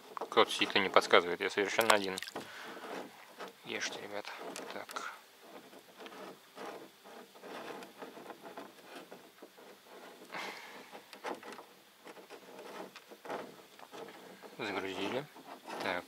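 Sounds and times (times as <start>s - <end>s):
scraping: 0.0s - 16.0s
hands rustling crumbly bait: 1.5s - 5.1s.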